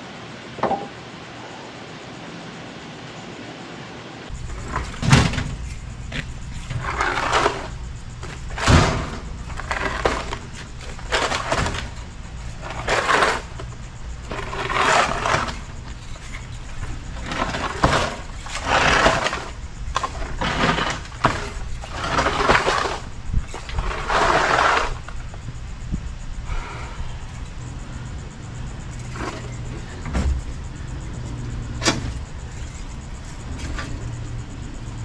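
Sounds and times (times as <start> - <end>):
metal appliance scraping and clattering: 4.3 - 25.3, 28.9 - 30.5.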